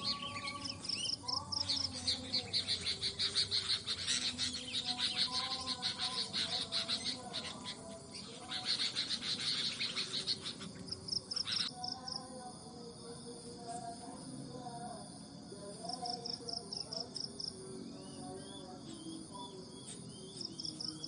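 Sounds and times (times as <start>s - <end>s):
faint bird calls: 0.0s - 11.7s
high pulsed insect trills: 0.0s - 21.0s
insects chirping: 0.0s - 21.0s.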